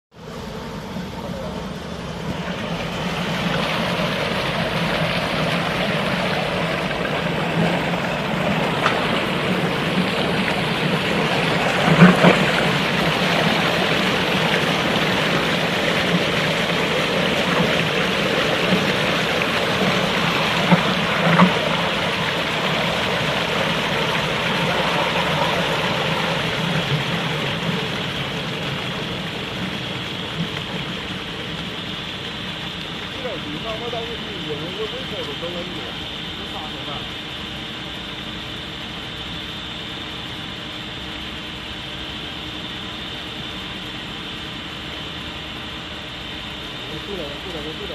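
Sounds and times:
water churning and splashing: 0:00.4 - 0:39.0
mixer whirring: 0:01.0 - 0:31.2.

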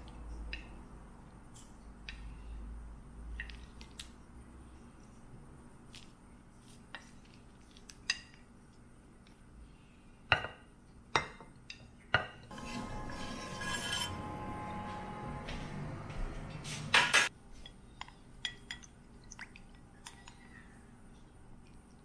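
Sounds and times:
background music held tones: 0:12.5 - 0:17.0.

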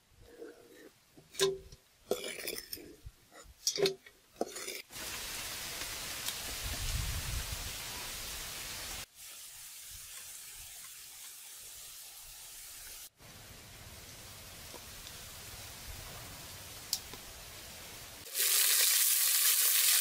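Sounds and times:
steady hiss: 0:04.9 - 0:20.0.

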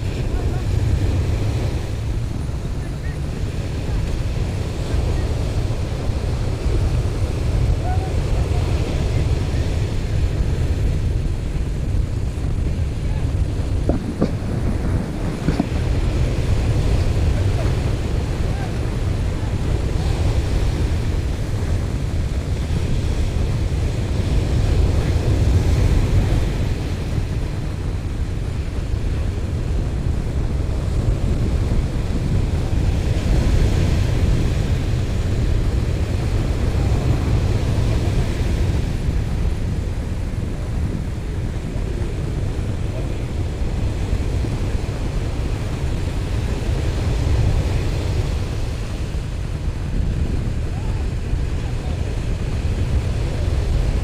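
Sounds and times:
surf washing up beach: 0:00.0 - 0:54.0
wind buffeting microphone: 0:00.0 - 0:54.0.

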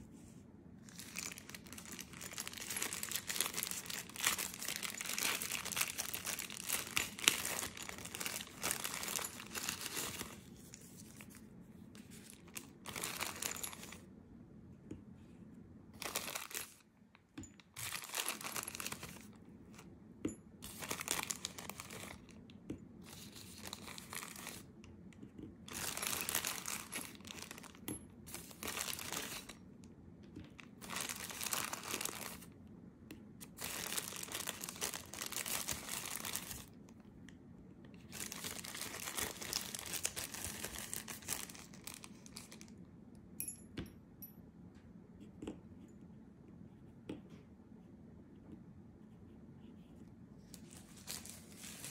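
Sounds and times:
plastic wrapper crinkling: 0:00.8 - 0:11.4, 0:12.1 - 0:14.0, 0:16.0 - 0:16.8, 0:17.7 - 0:19.4, 0:20.7 - 0:22.4, 0:23.1 - 0:24.7, 0:25.6 - 0:29.6, 0:30.5 - 0:32.6, 0:33.4 - 0:36.8, 0:38.1 - 0:42.8, 0:50.6 - 0:51.9.

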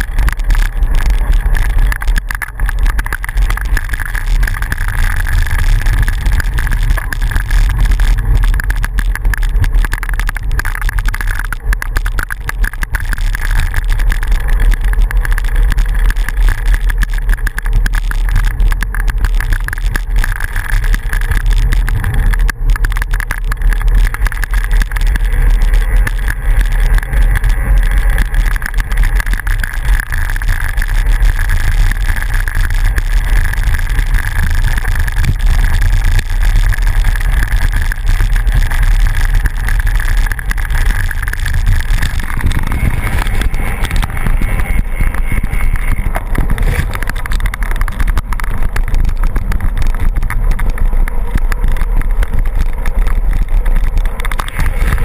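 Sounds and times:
bicycle tyres rumbling on dirt: 0:00.0 - 0:55.0
steady hum: 0:00.0 - 0:55.0
wind buffeting microphone: 0:33.9 - 0:55.0.

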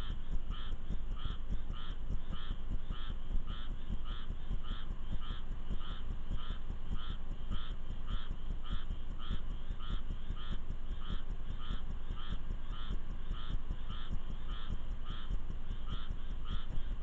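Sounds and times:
animal calling: 0:00.0 - 0:17.0.

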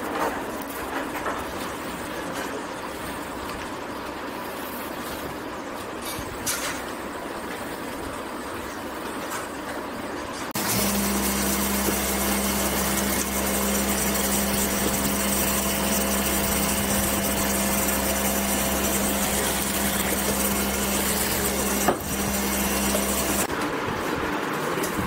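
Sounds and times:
sewing machines humming: 0:10.6 - 0:23.5.

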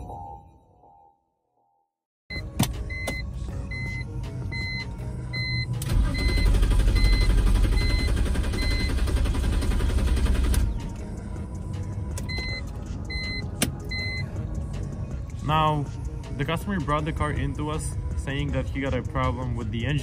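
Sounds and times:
dashboard warning chime: 0:02.3 - 0:06.4, 0:12.3 - 0:14.4
ignition clicks: 0:04.6 - 0:10.8, 0:12.1 - 0:14.2
car starter cranking: 0:05.7 - 0:10.9.

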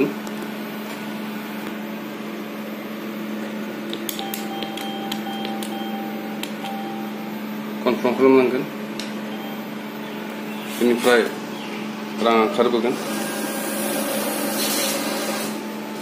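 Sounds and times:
machine electrical hum: 0:00.0 - 0:16.0
keypad key clicks: 0:03.9 - 0:05.8
short electronic beeps: 0:04.2 - 0:07.4, 0:09.3 - 0:09.7.

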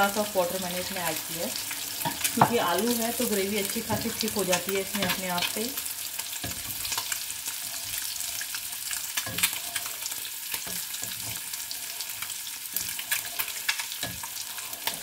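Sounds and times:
frying sizzle: 0:00.0 - 0:15.0
spatula knocking and scraping pan: 0:02.0 - 0:02.9, 0:03.7 - 0:05.6, 0:06.3 - 0:08.1, 0:10.5 - 0:15.0.

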